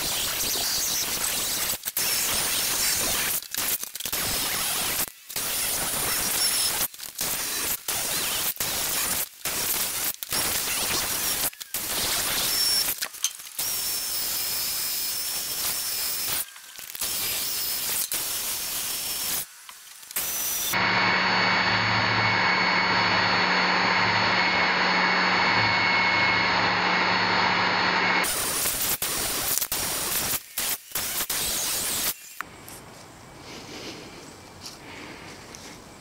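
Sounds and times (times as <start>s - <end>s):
belt sander sanding: 20.2s - 28.7s.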